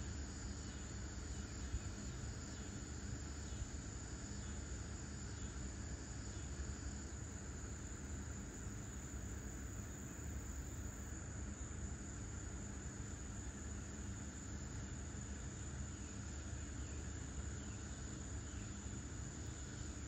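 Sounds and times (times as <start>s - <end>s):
insects chorus: 0.0s - 20.0s.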